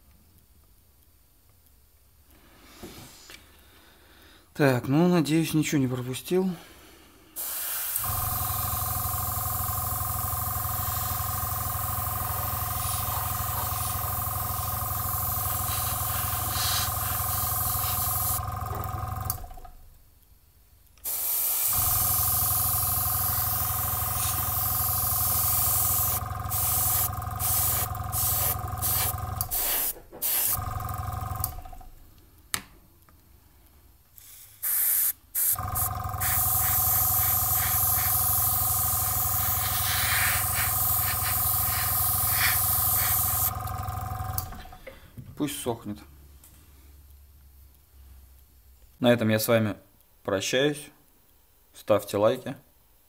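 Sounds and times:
compressor humming: 0:06.6 - 0:20.1, 0:21.0 - 0:32.7, 0:34.6 - 0:45.5
airbrush spraying air hiss: 0:07.3 - 0:18.5, 0:21.0 - 0:30.6, 0:34.2 - 0:43.6.

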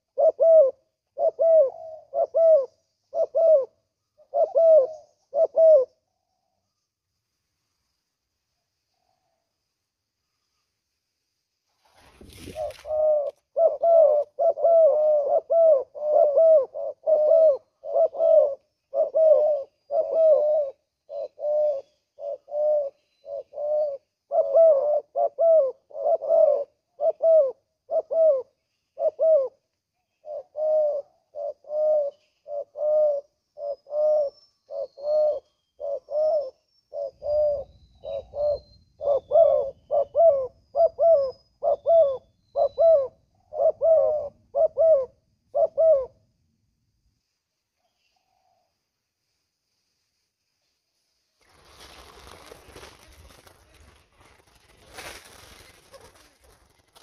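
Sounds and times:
doves cooing: 0:00.0 - 0:06.0, 0:12.0 - 0:29.6, 0:30.2 - 0:46.2, 0:51.8 - 0:57.0
faint high bird chirps: 0:01.2 - 0:08.1, 0:12.3 - 0:25.0, 0:28.0 - 0:44.8, 0:47.7 - 0:48.8.

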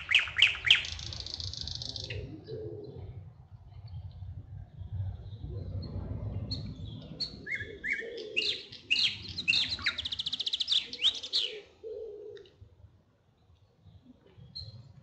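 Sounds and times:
songbird singing and trilling: 0:00.0 - 0:03.0, 0:05.2 - 0:11.7
low rumble: 0:02.1 - 0:07.8.

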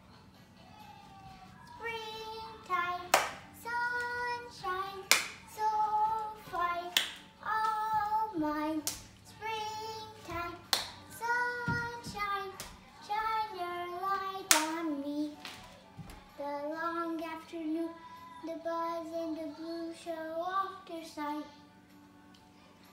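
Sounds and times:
girl singing unaccompanied: 0:00.7 - 0:21.8
sharp hand claps: 0:03.1 - 0:03.5, 0:05.0 - 0:05.4, 0:06.9 - 0:07.2, 0:08.8 - 0:09.1, 0:10.7 - 0:11.0, 0:14.5 - 0:14.8.

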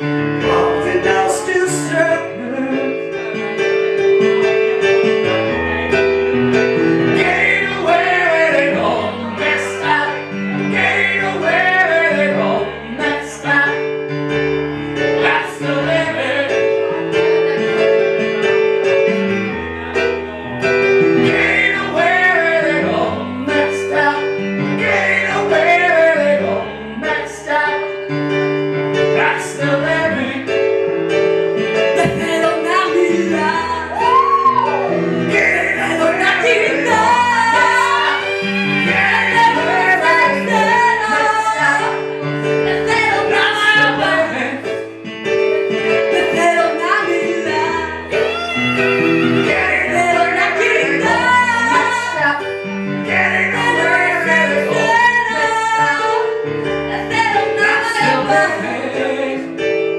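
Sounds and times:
electric keyboard chords: 0:00.0 - 0:59.9
woman singing: 0:21.4 - 0:28.0, 0:32.0 - 0:34.7, 0:35.8 - 0:42.0, 0:42.6 - 0:44.8, 0:46.0 - 0:48.3, 0:49.5 - 0:56.3, 0:56.9 - 0:59.4.

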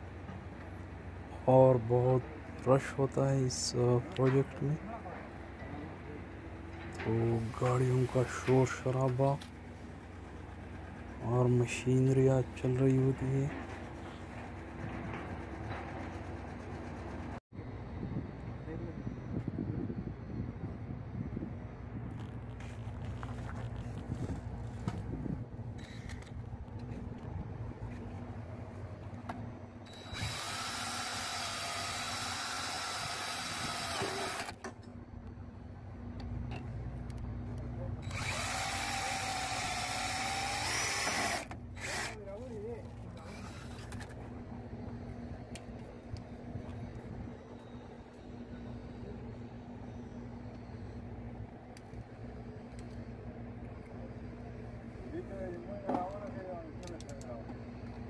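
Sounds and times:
low mechanical hum: 0:00.0 - 0:58.0
cordless drill boring into metal: 0:29.9 - 0:34.6, 0:38.0 - 0:42.2.

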